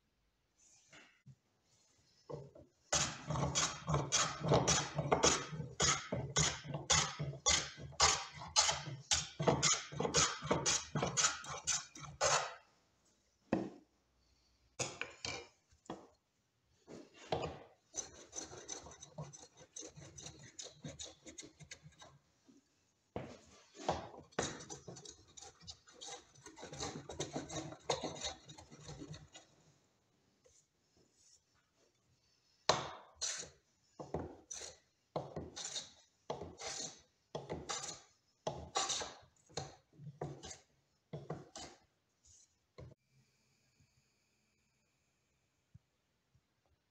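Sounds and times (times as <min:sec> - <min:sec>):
hand plane shaving wood: 0:03.0 - 0:12.6, 0:18.0 - 0:22.1, 0:24.4 - 0:29.5.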